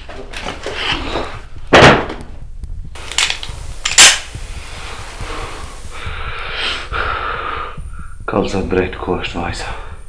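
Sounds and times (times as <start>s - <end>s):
low rumbling movement: 0.4s - 10.0s
heavy breathing: 4.4s - 8.3s.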